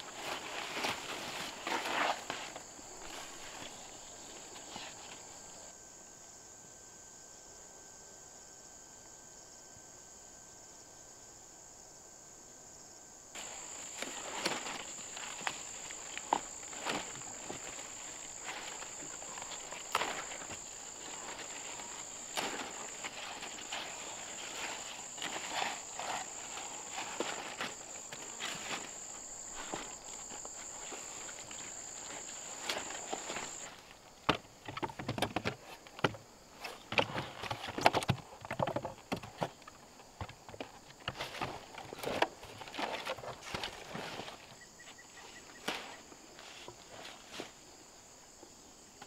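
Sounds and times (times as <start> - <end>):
leaves rustling: 0.0 - 5.7, 13.4 - 34.2
insects calling: 0.0 - 49.0.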